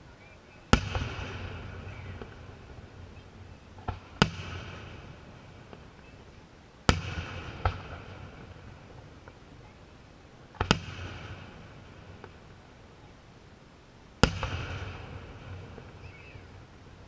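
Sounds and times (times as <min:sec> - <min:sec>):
fireworks booming: 0:00.7 - 0:06.2, 0:06.8 - 0:09.7, 0:10.5 - 0:12.6, 0:14.2 - 0:17.0.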